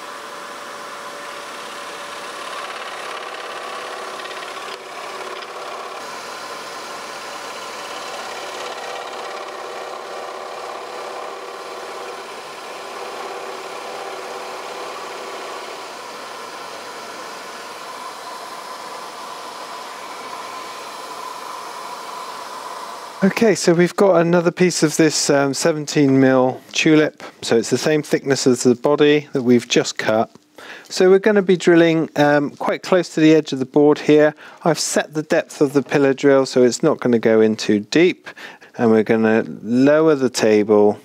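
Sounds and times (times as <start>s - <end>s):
scroll saw cutting wood: 0.0s - 23.8s.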